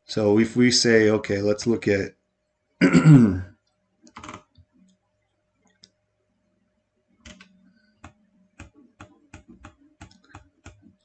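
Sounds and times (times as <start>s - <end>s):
computer mouse clicks: 7.2s - 11.0s.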